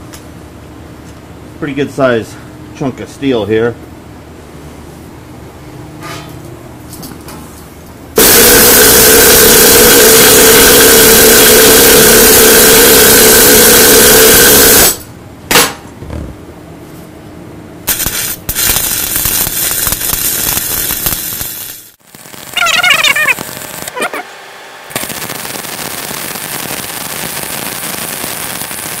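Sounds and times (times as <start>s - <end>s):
welding arc crackling: 8.2s - 15.0s, 17.9s - 24.3s, 24.9s - 29.0s
welding arc hissing: 8.2s - 15.0s, 17.9s - 24.3s, 24.9s - 29.0s.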